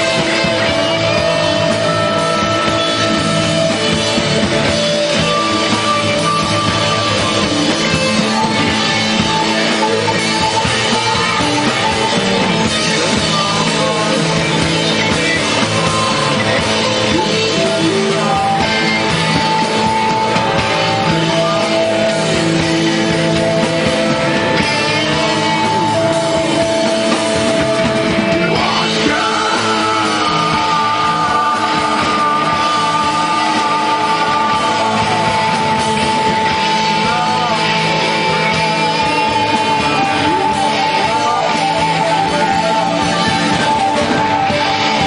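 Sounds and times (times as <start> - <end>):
bending electric guitar lead notes: 0.0 - 45.0
rock band playing live: 0.0 - 45.0.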